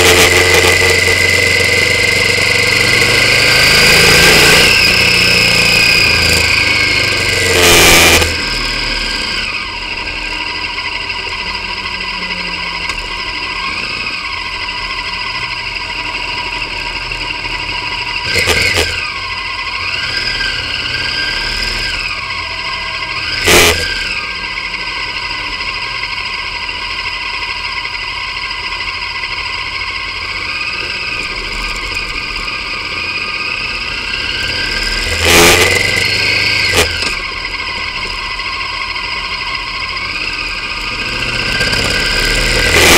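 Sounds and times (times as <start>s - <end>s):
motorcycle engine running: 0.0s - 42.9s.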